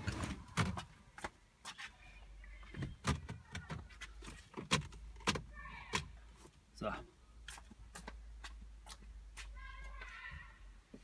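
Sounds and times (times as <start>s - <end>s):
clicks and knocks in car cabin: 2.7s - 6.2s.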